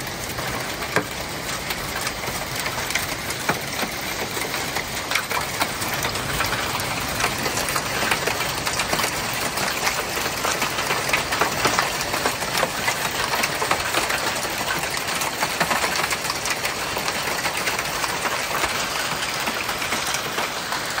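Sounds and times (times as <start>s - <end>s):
heavy rain hissing: 0.0s - 15.0s
hailstones ticking: 0.0s - 21.0s.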